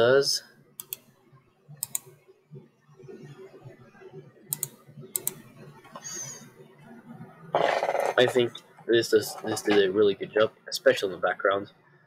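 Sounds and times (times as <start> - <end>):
faint low murmur: 0.0 - 12.0
computer keyboard clicks: 0.8 - 1.1, 1.8 - 2.1, 4.5 - 5.4.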